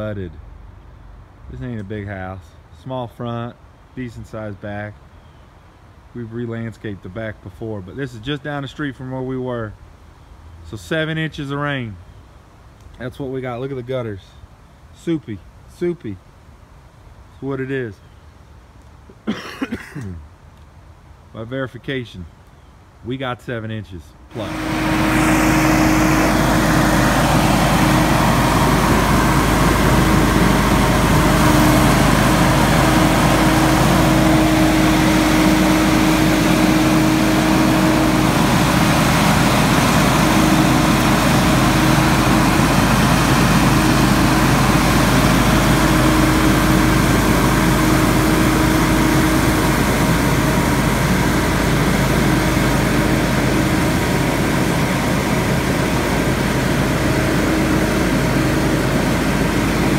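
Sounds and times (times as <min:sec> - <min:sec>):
leaf blower running: 0:24.3 - 0:59.9.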